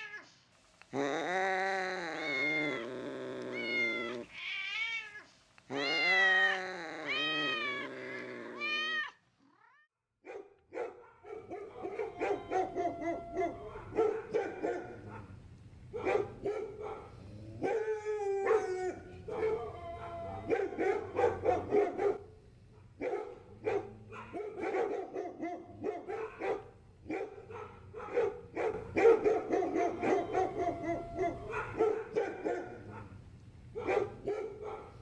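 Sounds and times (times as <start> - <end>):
kitten meowing: 1.0 - 9.2
hounds barking and yelping: 10.3 - 22.2, 23.0 - 33.2, 33.8 - 35.0.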